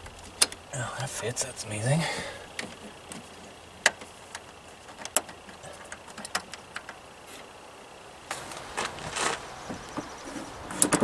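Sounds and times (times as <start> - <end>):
clicks and taps in engine bay: 0.0 - 0.6, 2.5 - 7.0.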